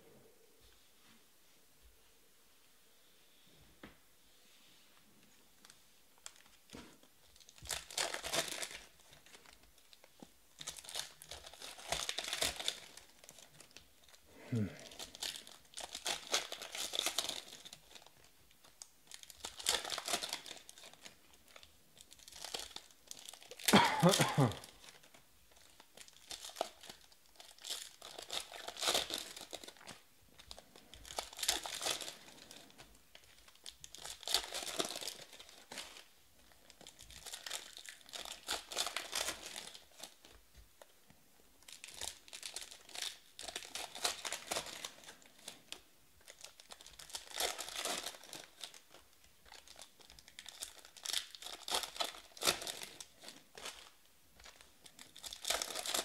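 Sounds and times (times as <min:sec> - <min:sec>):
foil card packs tearing and crinkling: 0:07.5 - 0:09.6, 0:10.6 - 0:13.8, 0:14.8 - 0:18.2, 0:19.1 - 0:36.1, 0:36.7 - 0:40.3, 0:41.7 - 0:56.0.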